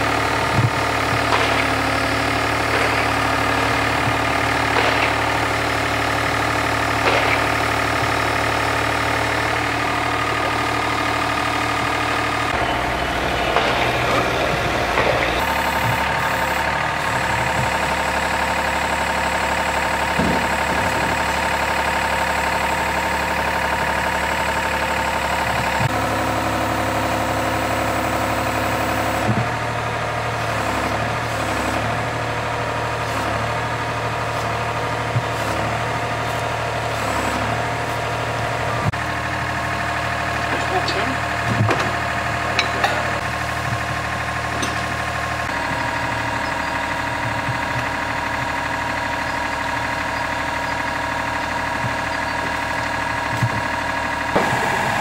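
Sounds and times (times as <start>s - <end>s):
drilling rig engine running: 0.0s - 55.0s
sharp knocks: 2.6s - 5.5s, 7.0s - 7.7s.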